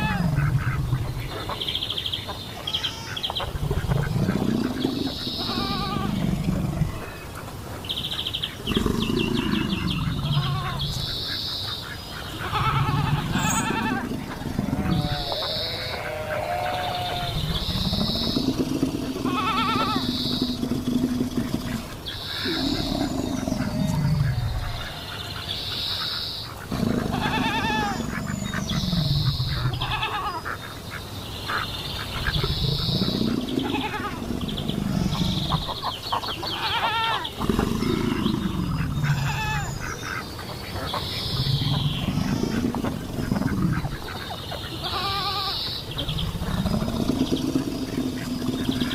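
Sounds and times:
long low rising calls: 3.4s - 7.3s, 8.5s - 11.1s, 12.4s - 25.7s, 32.1s - 36.0s, 37.3s - 40.0s, 41.0s - 44.1s, 45.2s - 48.9s
goat-like bleats: 12.4s - 14.0s, 19.3s - 20.0s, 44.8s - 45.5s.

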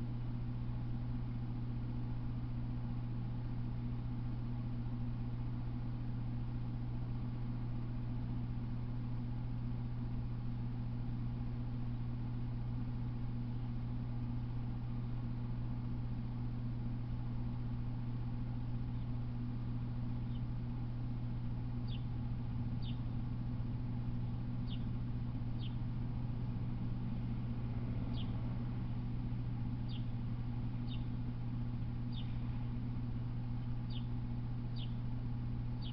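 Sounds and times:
low electrical hum: 0.0s - 35.9s.

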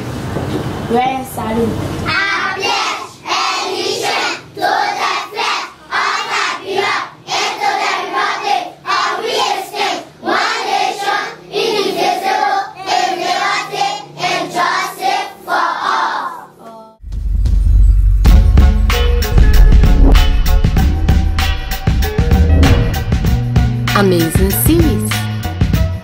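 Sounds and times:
children singing together: 2.1s - 17.0s.

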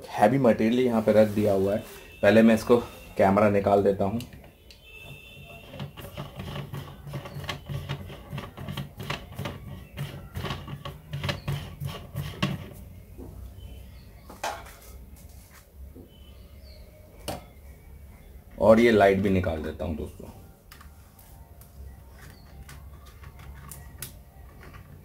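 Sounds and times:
plastic and metal parts clicking: 22.2s - 25.0s.

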